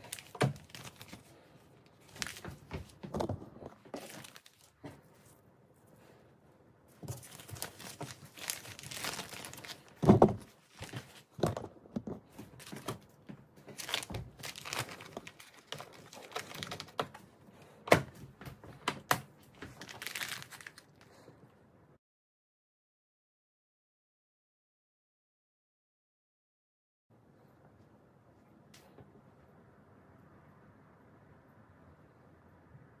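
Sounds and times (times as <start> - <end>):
plastic bag crinkling: 0.0 - 4.8, 7.0 - 13.0, 13.7 - 17.2, 19.5 - 21.3.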